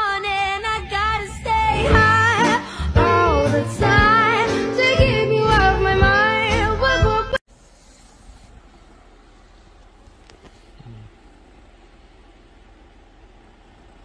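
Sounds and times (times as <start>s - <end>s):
woman singing: 0.0s - 7.4s
instrumental backing with bass: 1.7s - 7.4s.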